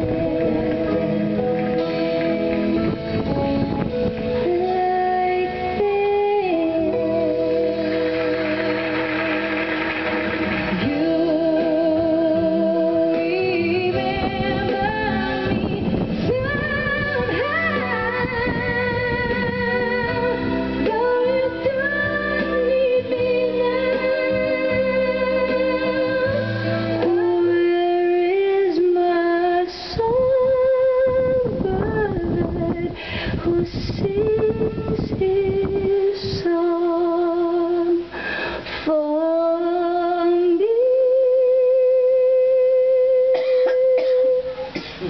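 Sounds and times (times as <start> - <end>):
woman singing a slow ballad: 0.0 - 2.0, 4.3 - 9.7, 10.8 - 45.0
instrumental accompaniment: 0.0 - 28.9.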